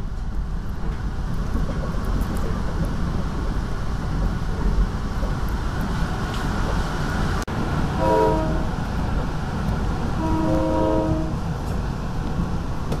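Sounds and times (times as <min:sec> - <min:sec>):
train rumble inside coach: 0:00.0 - 0:13.0
train horn chord blast: 0:08.0 - 0:08.7, 0:10.2 - 0:11.4.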